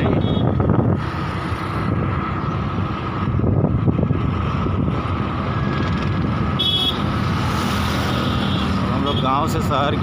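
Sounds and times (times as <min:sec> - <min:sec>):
wind buffeting microphone: 0:00.0 - 0:07.8
vehicle rumble: 0:00.0 - 0:10.0.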